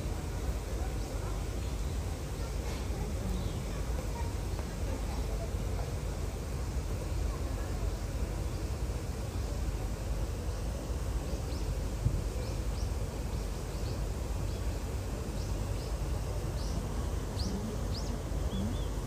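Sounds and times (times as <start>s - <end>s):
low outdoor background rumble: 0.0s - 19.0s
small birds chirping: 0.8s - 5.5s, 10.5s - 19.0s.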